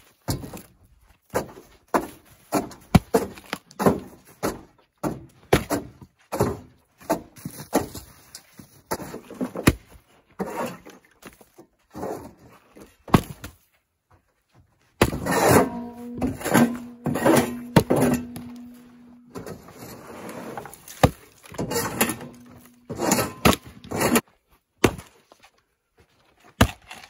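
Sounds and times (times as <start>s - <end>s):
axe splitting firewood: 0.0s - 13.6s, 15.0s - 25.2s, 26.4s - 27.0s
shovel scraping on metal: 10.4s - 11.1s, 15.0s - 24.3s.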